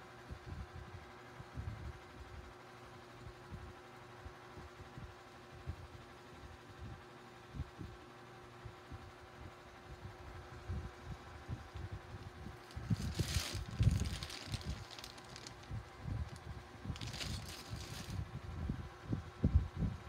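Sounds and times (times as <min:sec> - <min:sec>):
plastic bag crinkling: 0:12.5 - 0:18.2.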